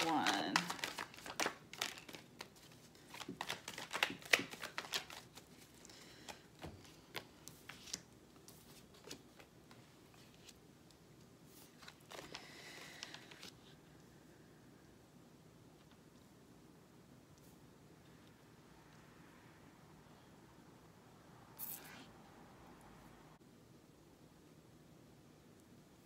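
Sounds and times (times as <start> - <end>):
cards being shuffled: 0.0 - 13.7.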